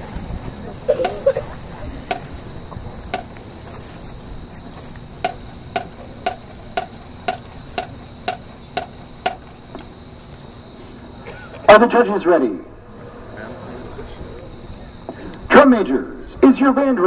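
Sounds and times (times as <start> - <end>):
low background murmur: 0.0 - 16.4
sharp percussive clicks: 5.2 - 9.5.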